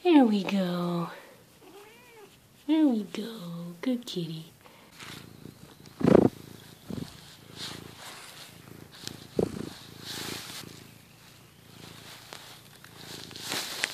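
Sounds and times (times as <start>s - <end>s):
cat purring: 0.0s - 13.9s
fur rustling on microphone: 6.0s - 13.9s.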